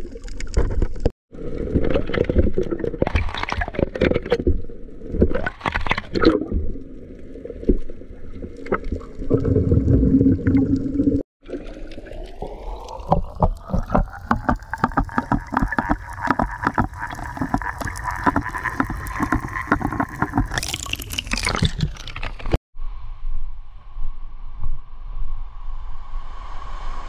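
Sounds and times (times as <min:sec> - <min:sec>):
underwater crackling clicks: 0:12.6 - 0:22.6.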